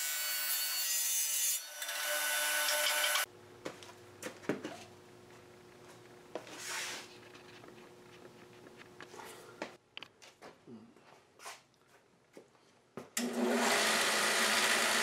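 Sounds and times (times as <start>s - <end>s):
table saw blade whining: 0.0s - 3.3s.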